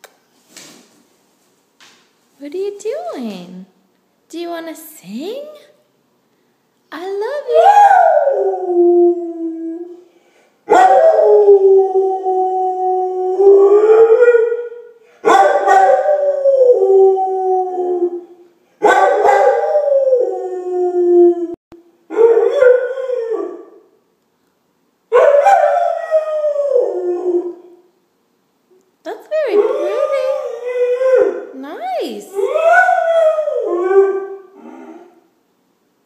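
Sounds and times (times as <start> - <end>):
dog howling: 7.5 - 10.0, 10.7 - 23.8, 25.2 - 27.8, 29.5 - 31.5, 32.3 - 35.2.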